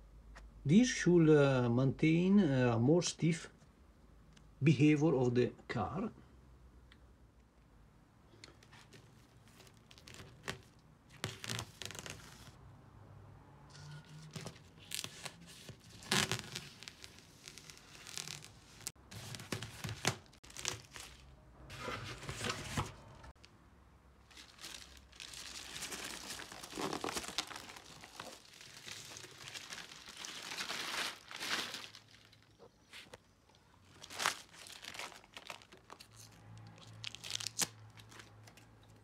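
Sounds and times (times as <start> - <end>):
wrapping tearing and crinkling: 8.5 - 12.6, 13.8 - 21.3, 24.2 - 33.2, 33.8 - 39.0.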